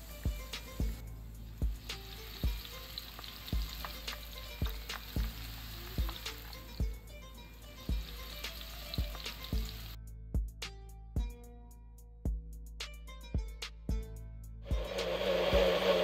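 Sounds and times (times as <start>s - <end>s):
oil sizzling in a frying pan: 0.0s - 7.0s, 7.8s - 10.0s, 14.7s - 16.0s
music with thumping bass beat: 0.0s - 16.0s
battered leaves dropped into oil: 1.8s - 6.8s.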